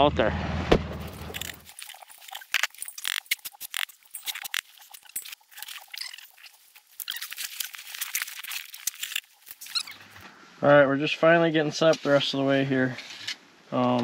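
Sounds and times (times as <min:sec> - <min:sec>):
snow crunching and squeaking: 0:00.9 - 0:10.4, 0:11.8 - 0:13.4
gear rustling and clicking: 0:01.0 - 0:10.4.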